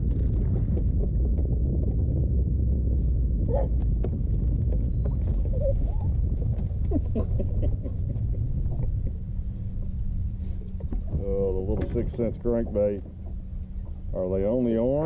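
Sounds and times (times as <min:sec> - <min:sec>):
wind and water rumble: 0:00.0 - 0:15.0
dog whining: 0:04.5 - 0:06.2.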